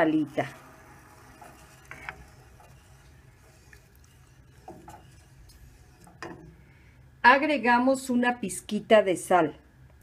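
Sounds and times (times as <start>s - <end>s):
spatula stirring liquid in pot: 0.0s - 7.1s
low steady hum: 0.0s - 10.0s.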